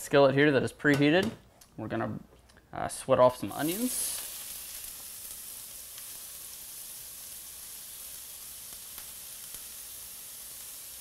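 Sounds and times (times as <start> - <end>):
onions sizzling in a skillet: 3.4 - 11.0.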